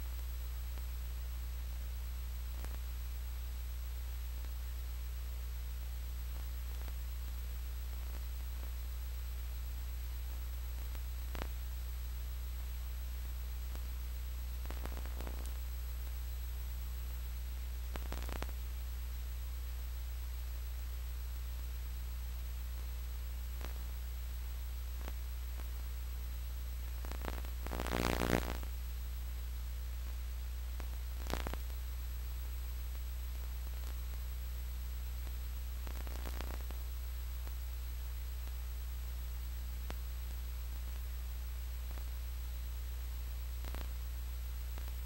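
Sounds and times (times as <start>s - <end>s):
low electrical hum with hiss: 0.0s - 45.0s
faint clicks and crackles: 2.5s - 2.9s, 6.3s - 8.8s, 10.1s - 11.8s, 13.6s - 16.3s, 17.8s - 18.7s, 22.6s - 24.0s, 24.8s - 25.9s, 26.8s - 28.8s, 30.0s - 34.4s, 35.1s - 39.2s, 39.8s - 42.6s, 43.5s - 44.0s, 44.6s - 45.0s.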